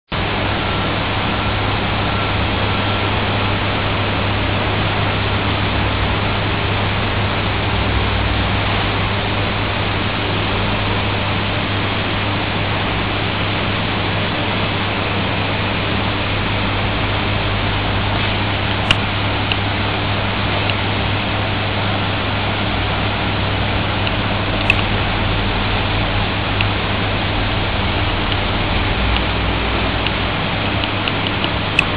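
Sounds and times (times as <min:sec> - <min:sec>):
click: 0:18.7 - 0:19.6, 0:24.0 - 0:24.9, 0:30.8 - 0:31.9.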